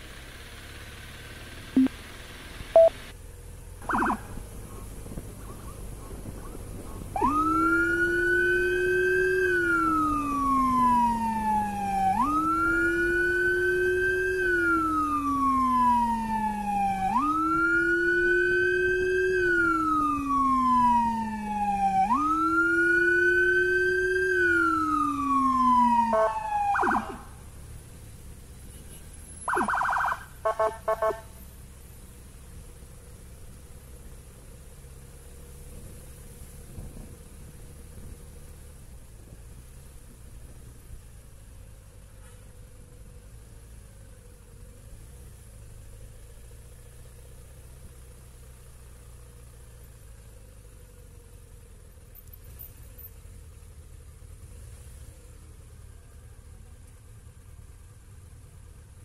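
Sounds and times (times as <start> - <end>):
electronic siren wailing: 2.8 - 3.0, 3.8 - 4.5, 7.1 - 27.4, 29.5 - 31.3
siren short blips: 2.8 - 3.0, 3.8 - 4.4, 25.8 - 27.3, 29.5 - 31.3.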